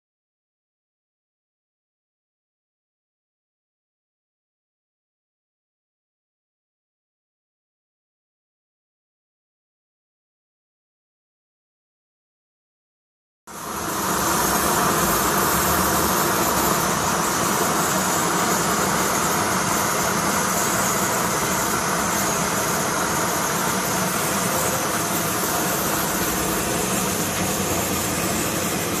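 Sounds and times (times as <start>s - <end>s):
mechanical rushing noise with hum: 13.5s - 29.0s.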